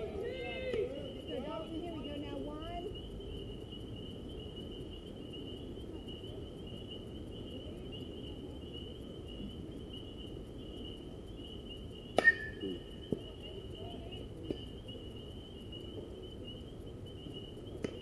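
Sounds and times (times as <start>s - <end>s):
insects trilling: 0.0s - 18.0s
metal bat hitting baseball: 12.2s - 12.6s.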